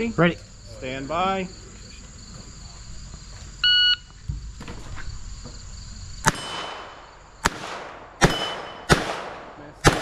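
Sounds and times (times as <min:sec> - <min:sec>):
insects trilling: 0:00.0 - 0:07.5
handgun shots at steel targets: 0:06.2 - 0:10.0.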